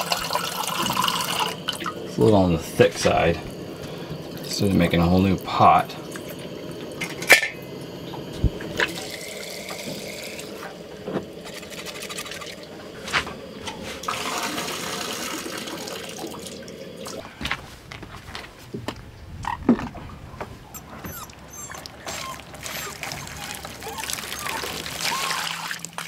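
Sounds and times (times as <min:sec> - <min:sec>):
water pouring into metal pot: 0:00.0 - 0:07.9, 0:08.8 - 0:10.6, 0:11.4 - 0:12.7, 0:14.0 - 0:17.2, 0:23.0 - 0:26.0.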